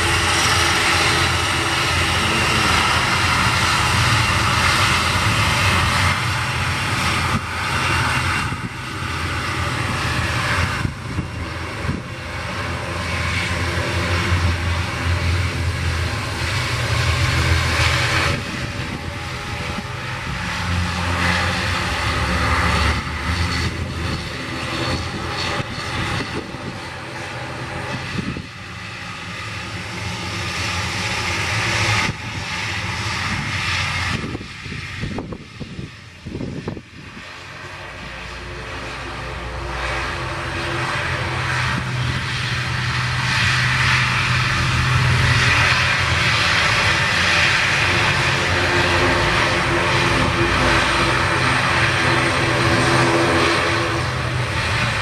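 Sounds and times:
turboprop propeller drone: 0.0 - 55.0.

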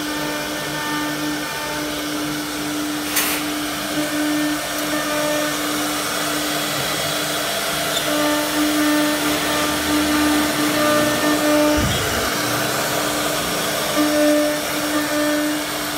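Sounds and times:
cnc router whine: 0.0 - 15.9
rushing air from dust extraction: 6.1 - 15.9
low thump: 11.7 - 12.3.

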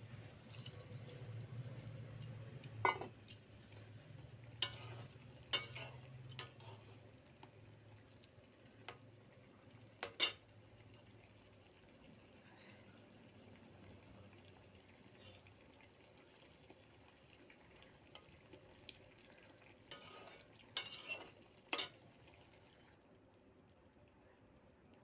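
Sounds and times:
spatula scraping metal pan: 4.6 - 7.0, 19.9 - 22.0.

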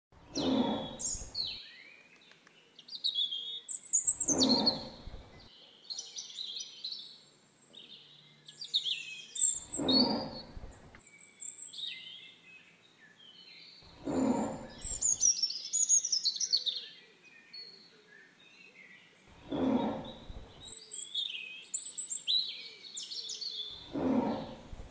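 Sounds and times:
tiger growls: 0.2 - 1.6, 4.0 - 5.6, 9.4 - 11.0, 13.8 - 15.2, 19.3 - 20.8, 23.7 - 24.9
small birds chirping: 0.2 - 24.9.

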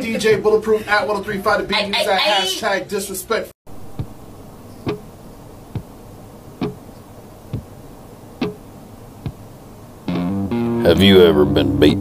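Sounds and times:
low hiss: 3.3 - 12.0
soft knocks: 3.8 - 4.2, 4.8 - 5.1, 5.7 - 6.0, 6.6 - 7.8, 8.4 - 9.5.

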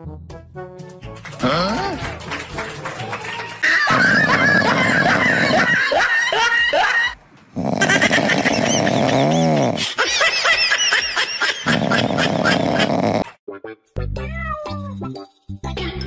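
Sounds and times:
laughter: 3.6 - 7.2, 7.8 - 13.0.

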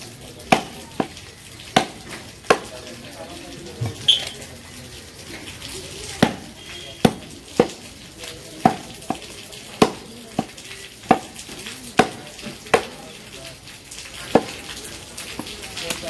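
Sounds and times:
chopper striking meat on wood block: 0.5 - 1.2, 1.8 - 2.7, 6.2 - 6.4, 7.0 - 7.8, 8.6 - 9.2, 9.8 - 12.9.

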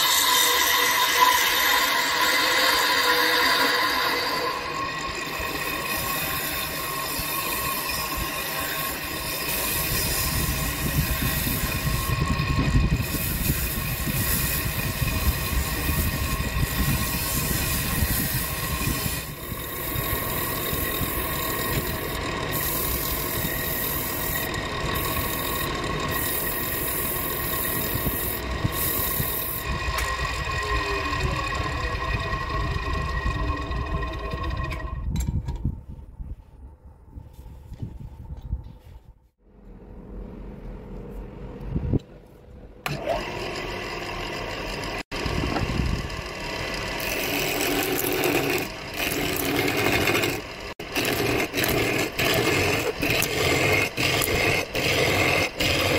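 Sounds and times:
sandpaper hissing on spinning wood: 0.0 - 33.7, 46.8 - 55.9
lathe motor humming: 0.0 - 35.1, 42.8 - 55.9.

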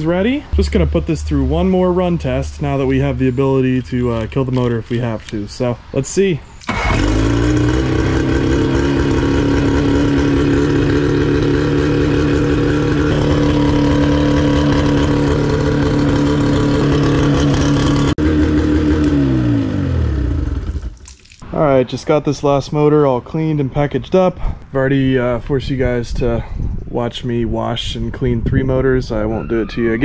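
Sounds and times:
outboard motor idling: 6.7 - 21.0.

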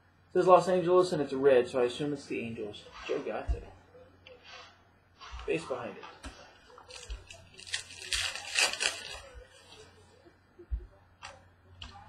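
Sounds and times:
pack wrapper crinkling: 6.8 - 9.8.

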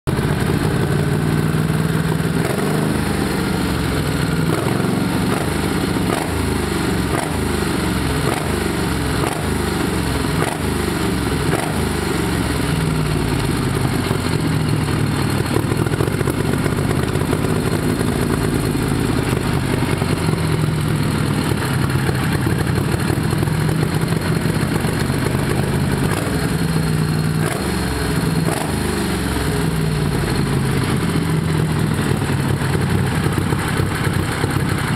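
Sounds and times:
engine revving: 1.4 - 34.9.

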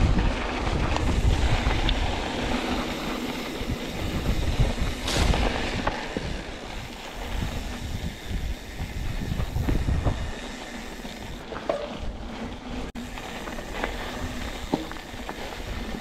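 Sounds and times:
wind rushing on microphone: 0.0 - 11.4
tyre noise on dirt: 0.0 - 16.0
bike knocks and rattles: 3.3 - 7.9, 10.9 - 16.0.

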